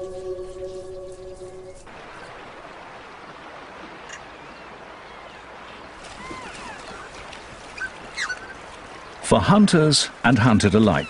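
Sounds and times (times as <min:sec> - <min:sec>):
fast-flowing river: 0:01.8 - 0:11.0
faint high calls: 0:03.9 - 0:09.2.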